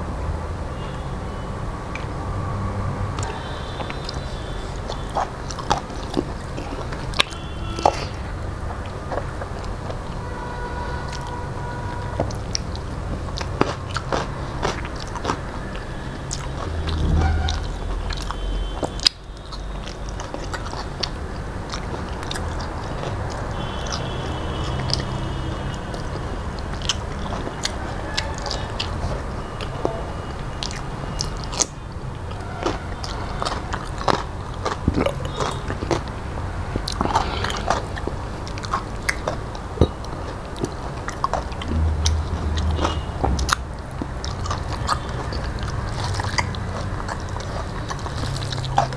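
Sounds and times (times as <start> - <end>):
person chewing food: 3.1 - 48.9
sharp mouth clicks: 3.2 - 10.2, 12.2 - 48.9.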